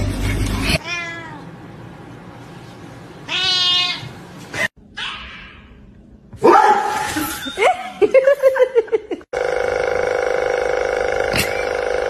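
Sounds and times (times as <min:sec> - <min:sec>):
cat meowing: 0:00.8 - 0:01.4, 0:03.3 - 0:04.1.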